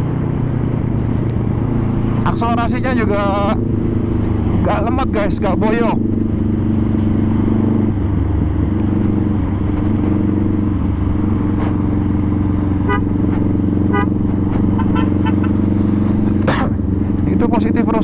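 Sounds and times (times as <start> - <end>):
motorcycle engine cruising: 0.0 - 18.0
short horn beeps: 13.9 - 14.2, 14.8 - 15.6.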